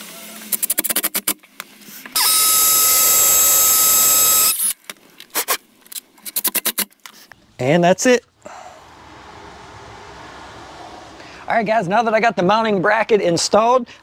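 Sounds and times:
cordless driver whine: 2.2s - 4.8s.

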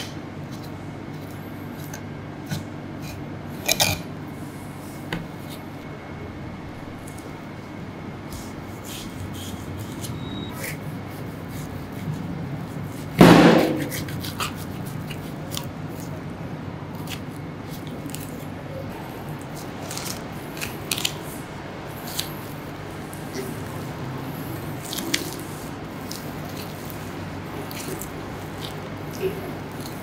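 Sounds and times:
steady room hum: 0.0s - 30.0s
knife scraping and cutting meat: 8.3s - 16.2s, 19.4s - 21.4s
loud knock: 13.2s - 14.0s.

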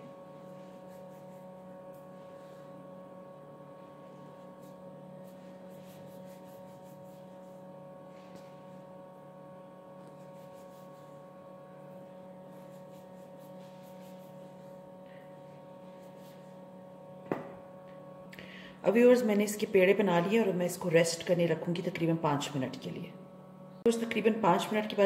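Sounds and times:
low room hum: 0.0s - 25.0s
dough scraper cutting dough: 10.1s - 11.2s.

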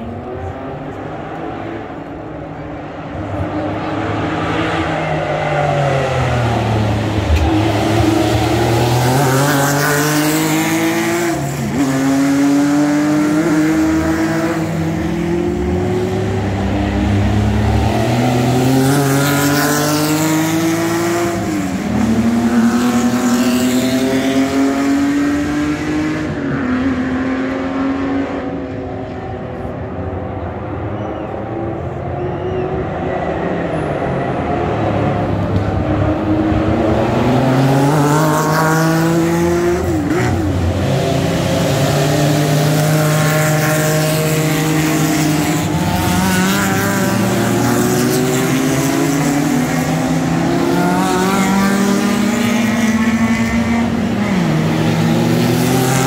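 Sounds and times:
racing car engines passing: 0.0s - 56.0s.

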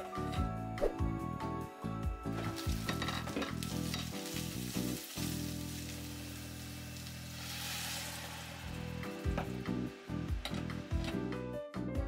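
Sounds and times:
background music: 0.0s - 12.0s
vegetables sizzling in oil: 2.3s - 11.3s.

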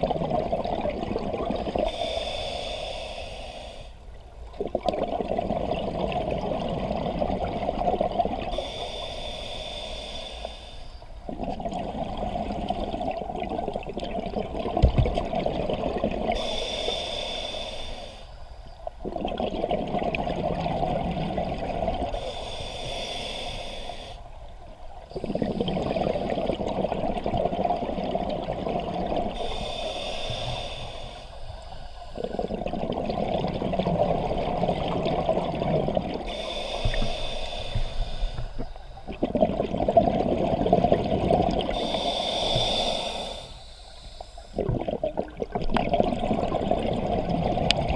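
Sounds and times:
exhaled bubbles rushing: 0.0s - 1.9s, 4.6s - 8.5s, 19.0s - 22.1s, 25.1s - 29.4s, 32.2s - 36.2s, 39.0s - 41.8s, 44.6s - 47.9s
regulator inhale: 1.8s - 4.1s, 8.5s - 11.2s, 16.3s - 18.8s, 22.1s - 24.5s, 29.3s - 32.6s, 36.2s - 39.1s, 41.6s - 44.7s.

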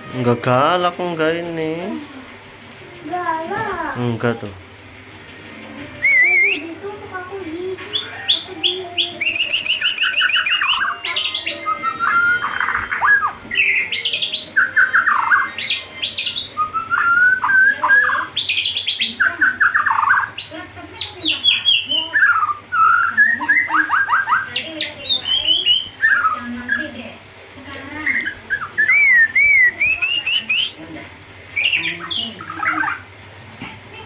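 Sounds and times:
bird singing varied song: 5.9s - 6.8s, 7.6s - 27.2s, 27.8s - 30.8s, 31.5s - 33.1s.

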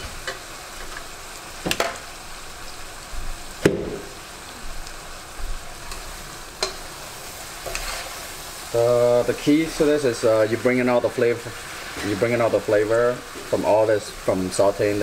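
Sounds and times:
food sizzling in a pot: 0.0s - 15.0s
sharp knocks on pot: 3.6s - 4.1s.

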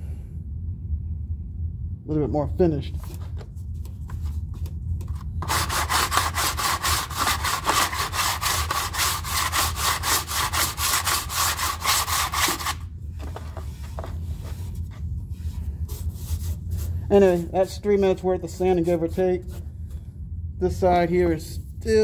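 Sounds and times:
sandpaper scratching on filler: 5.4s - 12.8s, 13.8s - 17.7s, 18.5s - 19.6s.

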